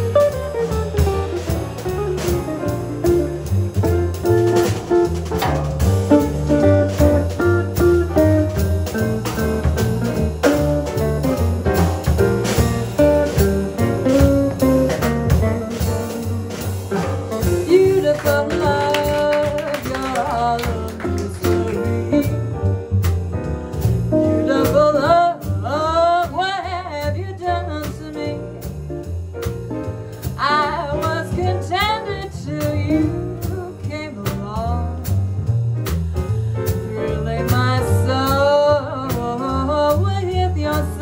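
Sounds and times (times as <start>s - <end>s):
jazz band playing: 0.0s - 41.0s
woman scat singing: 17.7s - 22.3s.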